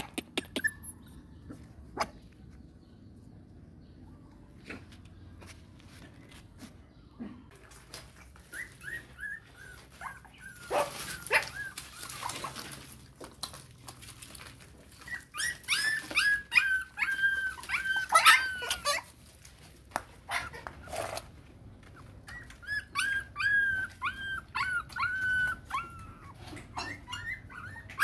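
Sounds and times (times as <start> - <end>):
puppies whimpering and squealing: 0.0 - 2.3, 8.2 - 13.1, 14.4 - 19.2, 20.3 - 28.0.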